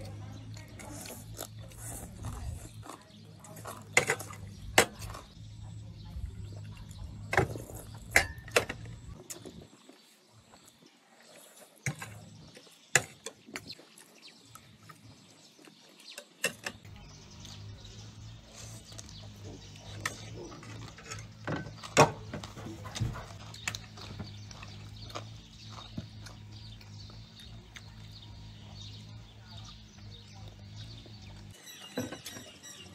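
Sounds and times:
chewing food: 0:00.0 - 0:05.4, 0:06.0 - 0:31.6.

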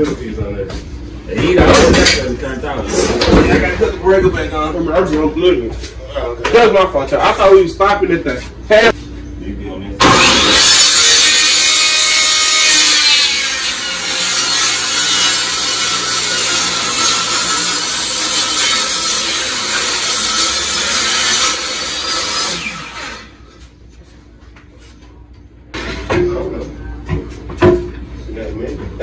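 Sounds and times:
table saw cutting wood: 0:10.0 - 0:23.5.

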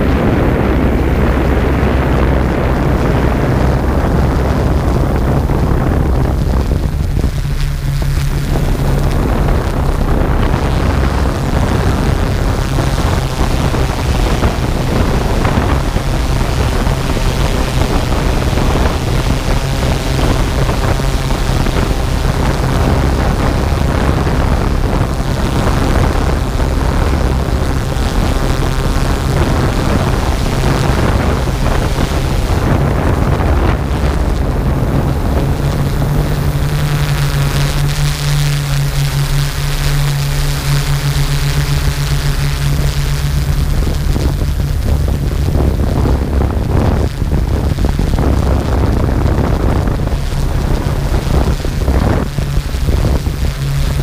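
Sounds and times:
drone motors humming: 0:00.0 - 0:54.0.

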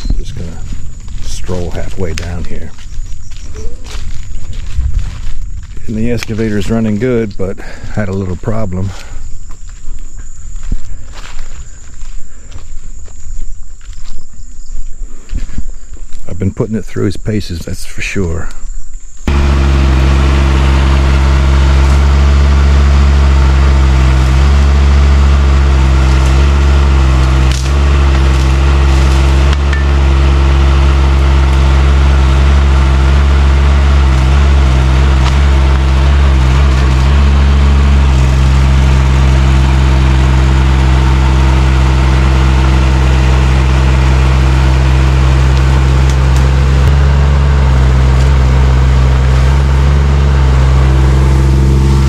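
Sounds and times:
excavator engine running: 0:00.0 - 0:09.1, 0:19.2 - 0:52.0
rake tearing weeds and brush: 0:19.3 - 0:52.0.

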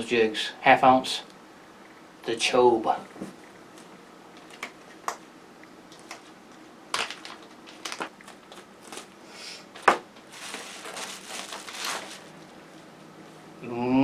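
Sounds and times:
plastic bag rustling: 0:06.9 - 0:09.2, 0:09.8 - 0:12.9
plastic packaging crinkling: 0:06.9 - 0:09.2, 0:10.2 - 0:12.5.

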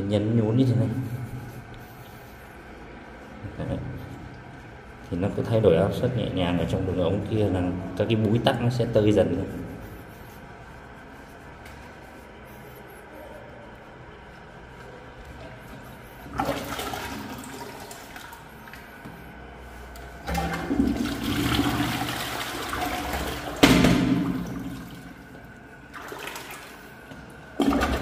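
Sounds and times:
water sloshing in toilet bowl: 0:16.1 - 0:19.3, 0:20.1 - 0:28.0
plunger pumping: 0:16.2 - 0:19.1, 0:20.2 - 0:28.0.

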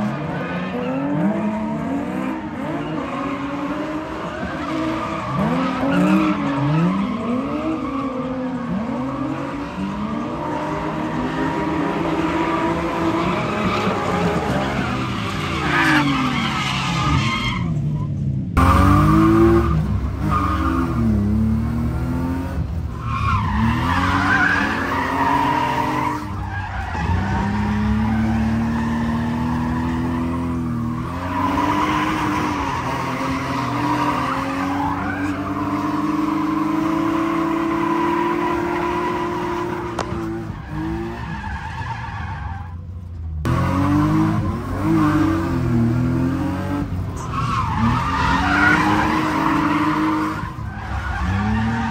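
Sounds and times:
car engines revving: 0:00.0 - 0:51.9
tyres skidding: 0:00.0 - 0:51.9.

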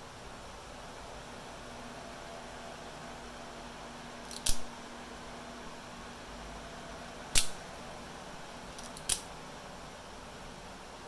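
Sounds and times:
knife blade metallic snap: 0:07.4 - 0:07.6, 0:08.8 - 0:09.3.

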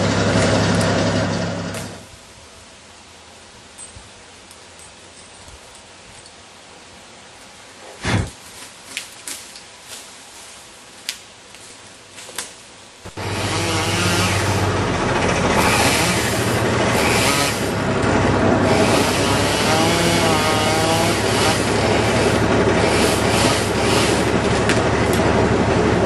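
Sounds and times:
engine running: 0:00.0 - 0:02.1, 0:13.0 - 0:26.0.

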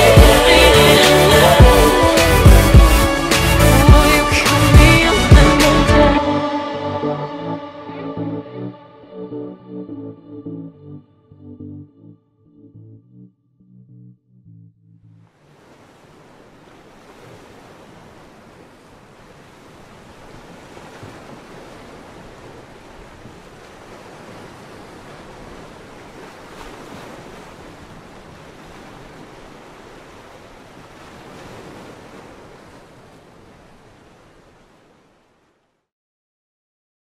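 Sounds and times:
ocean surf breaking: 0:15.4 - 0:35.4.

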